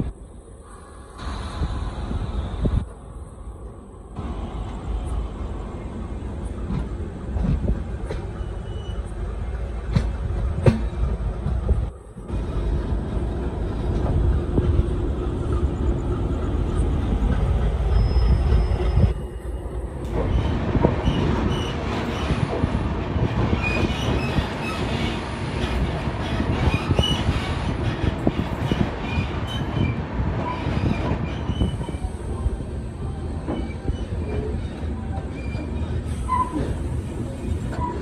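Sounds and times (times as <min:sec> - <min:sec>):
train rumbling on rails: 0:00.0 - 0:38.0
train wheel squeaks: 0:08.0 - 0:09.3, 0:15.5 - 0:22.7, 0:23.5 - 0:32.4, 0:33.3 - 0:38.0.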